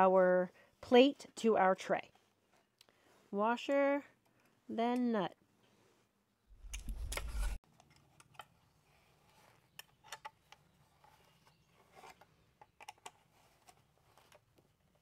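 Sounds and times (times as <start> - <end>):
small hardware clicking and rubbing: 6.6 - 8.5.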